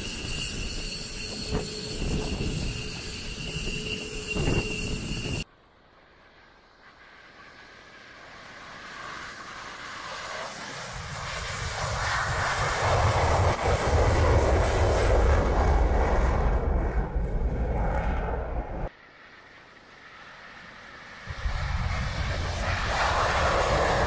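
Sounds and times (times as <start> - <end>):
jet taking off: 0.0 - 5.5, 6.3 - 24.0
deep rumble: 11.9 - 18.9.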